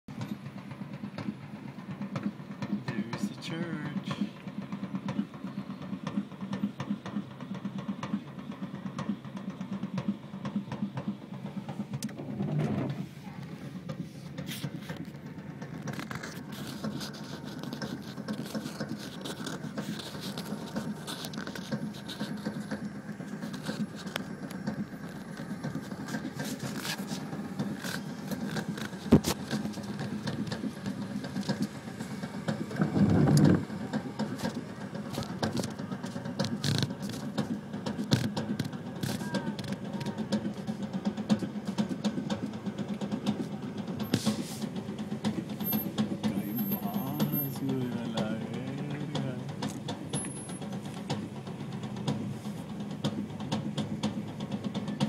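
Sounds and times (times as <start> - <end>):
car engine and road noise: 0.0 - 55.0
light ticks and pattering: 13.3 - 55.0.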